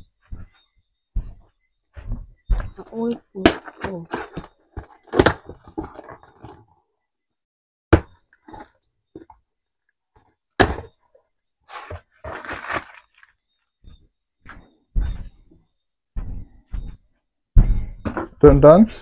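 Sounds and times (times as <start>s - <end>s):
rustling: 11.1s - 13.4s.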